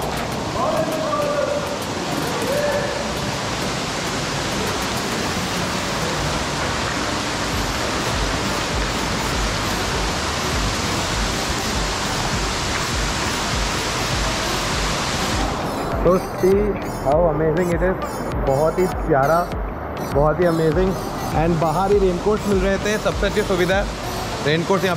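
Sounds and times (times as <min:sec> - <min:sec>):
rain: 0:00.0 - 0:16.5, 0:20.6 - 0:24.9
waterfall pouring: 0:00.0 - 0:16.5.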